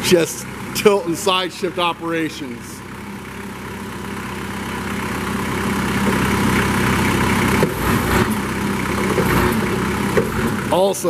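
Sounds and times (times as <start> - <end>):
diesel engine running: 0.0 - 11.0
hydraulics moving forklift mast: 0.0 - 11.0.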